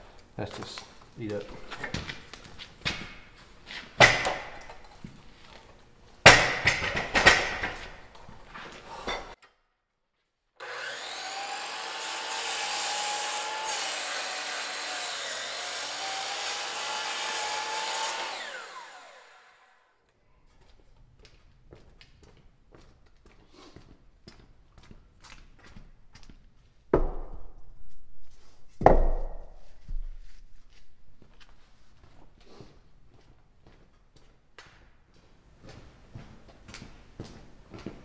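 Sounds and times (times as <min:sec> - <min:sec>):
miter saw motor running: 0:10.6 - 0:19.7
saw blade cutting wood: 0:10.6 - 0:19.8
saw winding down whine: 0:10.6 - 0:19.9
wooden knocks and thumps: 0:28.8 - 0:30.1.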